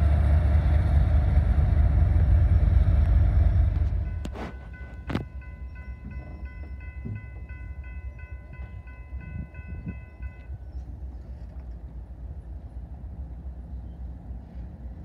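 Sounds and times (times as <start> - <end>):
grade crossing bell ringing: 4.0 - 10.7.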